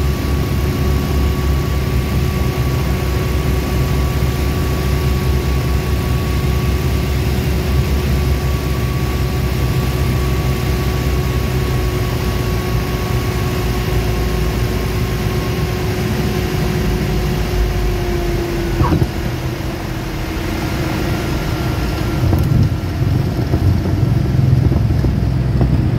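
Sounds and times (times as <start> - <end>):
propeller plane engine drone: 0.0 - 25.9
rumble of air and wheels: 0.0 - 25.9.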